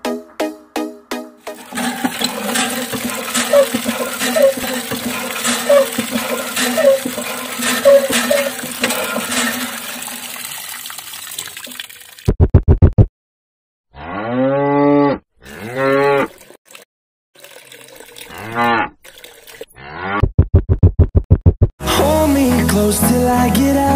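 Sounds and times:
water trickling and splashing: 1.5s - 12.3s, 16.0s - 19.7s
cow mooing: 14.0s - 16.3s, 18.3s - 18.9s
rapid beats: 20.3s - 21.7s.

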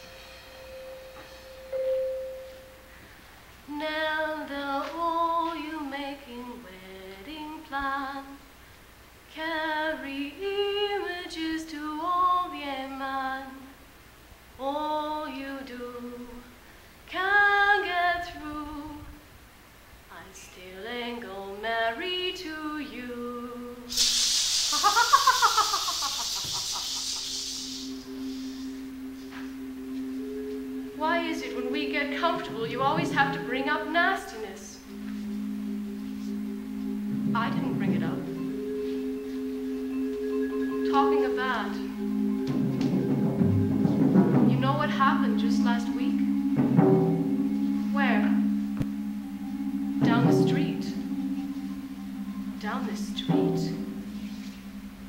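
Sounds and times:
woman singing unaccompanied: 3.7s - 8.5s, 9.3s - 13.8s, 14.6s - 19.3s, 20.1s - 24.0s, 30.8s - 35.0s, 36.8s - 38.6s, 40.4s - 42.2s, 44.3s - 46.7s, 47.6s - 54.2s
loud burst of hiss: 23.9s - 28.9s
steady tone: 23.9s - 55.0s.

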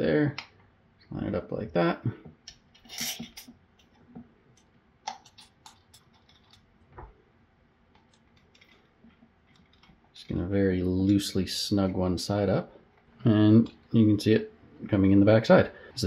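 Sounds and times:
metal clicks and scrapes: 2.5s - 4.0s, 4.6s - 6.7s, 8.0s - 10.0s.

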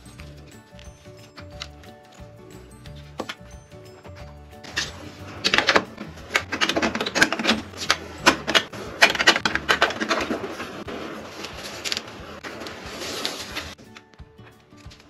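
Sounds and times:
plastic bricks clicking: 4.7s - 10.8s.

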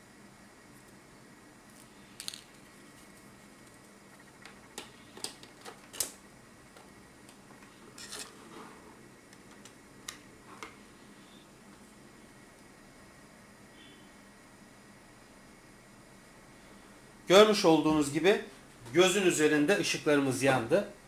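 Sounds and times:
cables and plug clicking and rustling: 1.7s - 8.4s, 9.3s - 10.8s.

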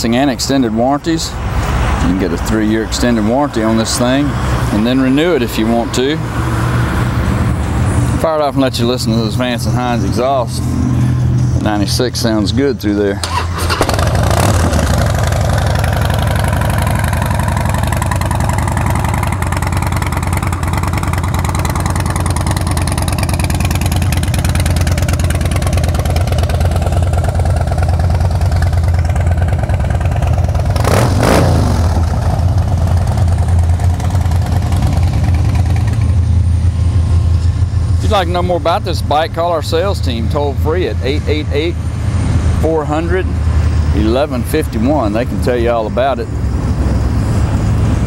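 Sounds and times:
motorcycle engine idling: 13.2s - 41.9s.

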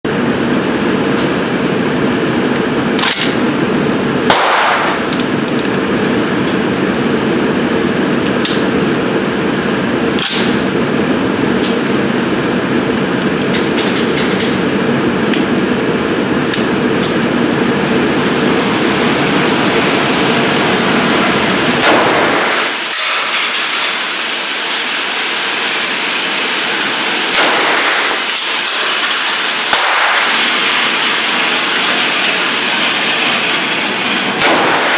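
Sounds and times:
ventilation drone: 0.0s - 34.9s
gunshots: 4.3s - 5.0s, 21.8s - 22.8s, 27.3s - 28.2s, 29.7s - 30.5s, 34.4s - 34.9s.

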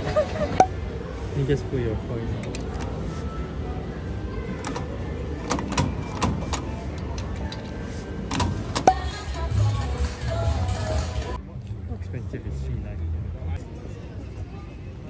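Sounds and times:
coin mechanism clicks and clunks: 2.4s - 3.0s, 4.6s - 9.1s.

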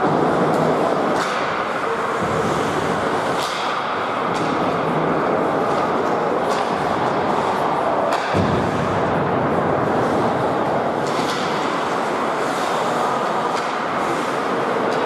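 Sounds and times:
ice hockey rink noise: 0.0s - 15.0s
thud: 8.1s - 9.3s.

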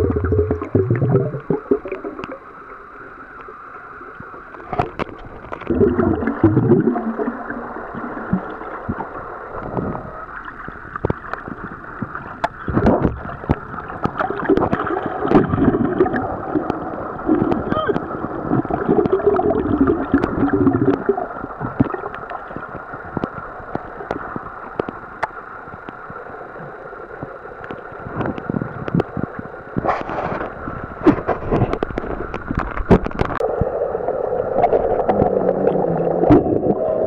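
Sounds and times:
water gurgling: 0.0s - 37.0s
sharp underwater clicks and knocks: 4.5s - 5.7s, 10.7s - 16.8s, 17.4s - 18.1s, 21.6s - 26.2s, 27.2s - 33.4s.

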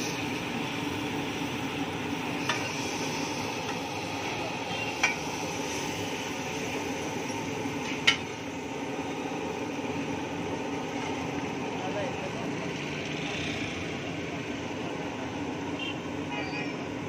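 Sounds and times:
vegetables sizzling on griddle: 0.0s - 17.0s
spatula clinking on griddle: 5.0s - 5.3s, 8.0s - 8.3s.

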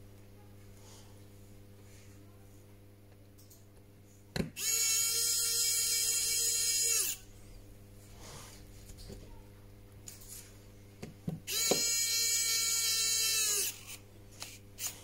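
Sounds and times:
electric screwdriver motor whine: 4.6s - 7.2s, 11.5s - 14.0s.

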